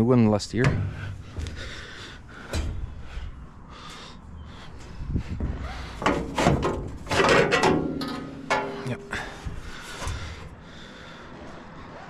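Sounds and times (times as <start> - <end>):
wind rumbling on microphone: 0.6 - 7.1.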